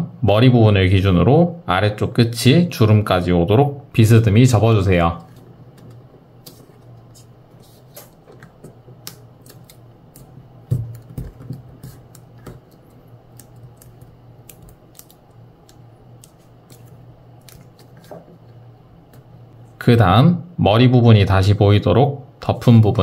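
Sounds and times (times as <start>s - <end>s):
steady low hum: 0.0s - 23.0s
paper folding and creasing: 5.2s - 18.6s.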